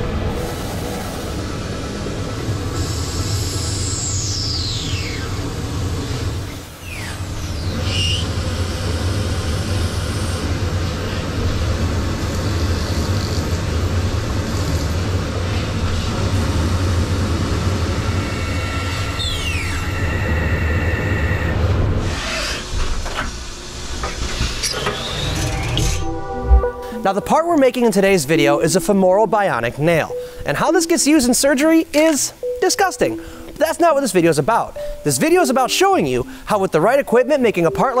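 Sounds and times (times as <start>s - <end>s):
falling machine whine: 0.0s - 13.4s, 14.8s - 22.6s
lathe droning with metal cutting: 0.0s - 21.4s
held machine tones: 25.9s - 38.0s.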